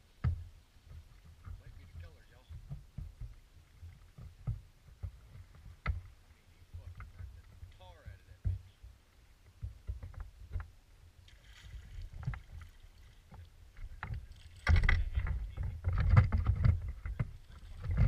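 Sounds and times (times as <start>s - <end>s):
knocks on boat: 0.2s - 6.1s, 6.8s - 8.9s.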